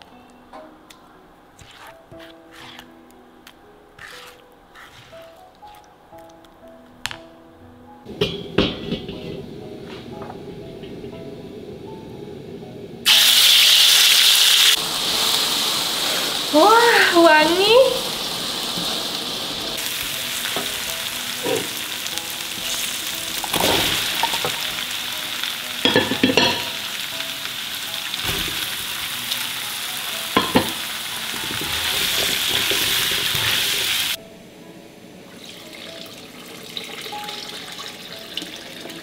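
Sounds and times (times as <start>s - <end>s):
metal spatula scraping a pan: 1.6s - 2.9s, 4.0s - 5.8s, 31.4s - 34.1s
vegetables sizzling in a wok: 13.0s - 34.2s
water poured into a wok: 35.3s - 39.0s.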